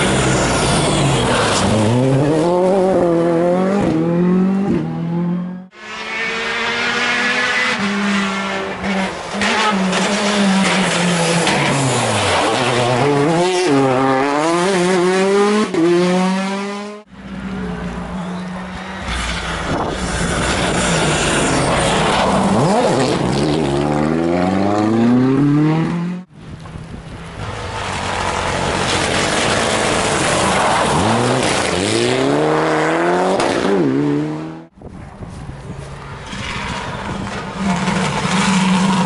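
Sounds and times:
rally car engines accelerating: 0.0 - 26.3, 36.2 - 39.0.

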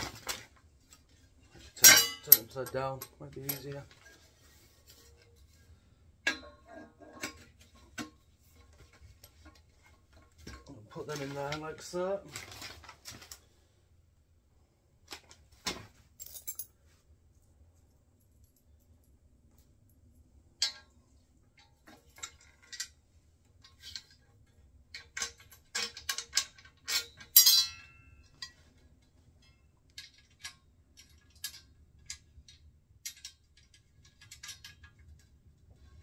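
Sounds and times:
metal nuts and bolts clinking: 1.5 - 4.3, 24.9 - 28.7, 29.4 - 35.2
ringing metal clink: 1.8 - 2.5, 27.3 - 28.3.

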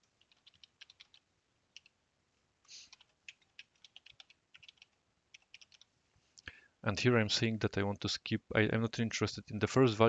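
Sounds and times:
keyboard typing: 0.0 - 2.0, 2.8 - 5.9
soft hiss: 0.0 - 10.0.

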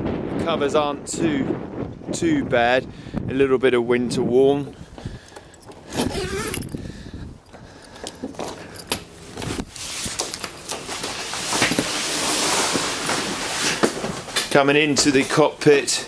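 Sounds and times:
fabric rustling: 9.1 - 14.6.

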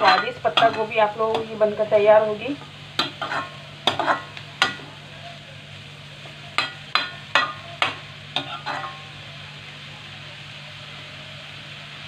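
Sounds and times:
vegetables sizzling: 0.0 - 12.0.

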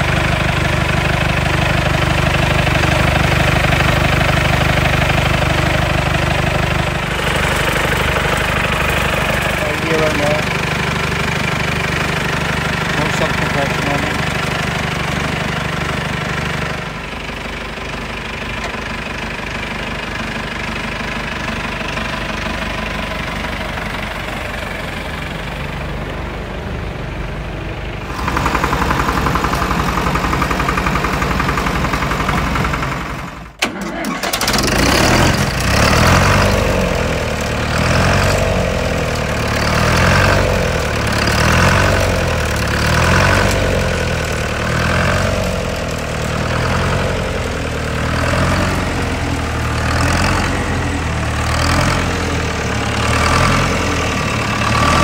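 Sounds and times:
tractor diesel engine running: 0.0 - 55.0.

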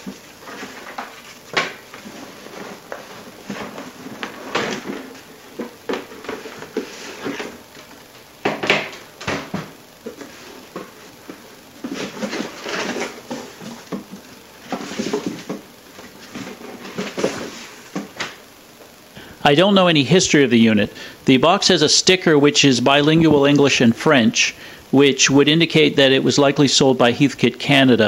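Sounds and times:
cardboard flaps rustling: 8.8 - 18.4.

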